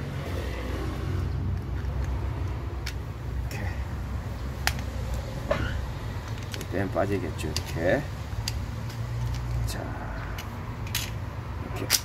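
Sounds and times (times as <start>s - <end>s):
sharp metal clicks of pliers: 1.5s - 3.6s, 4.4s - 5.3s, 6.2s - 12.0s.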